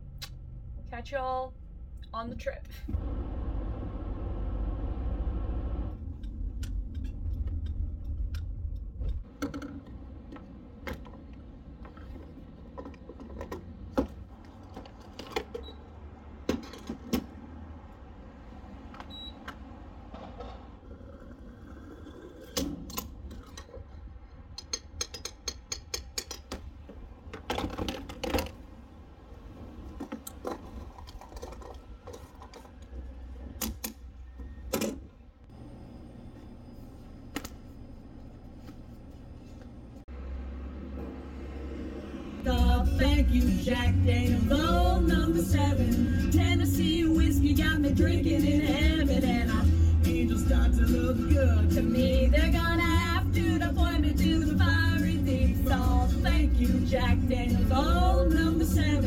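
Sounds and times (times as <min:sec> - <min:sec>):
road rumble inside moving car: 0:03.0 - 0:11.6.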